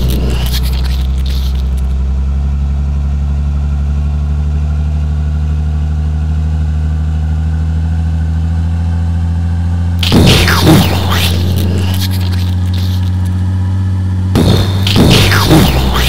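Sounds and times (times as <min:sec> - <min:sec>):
truck engine running: 0:00.0 - 0:16.0.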